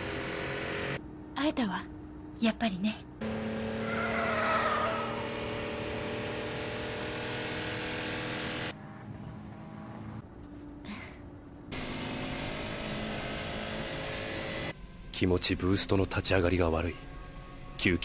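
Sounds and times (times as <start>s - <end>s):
road and wind noise: 3.0s - 14.8s
sports car engines running: 3.0s - 14.8s.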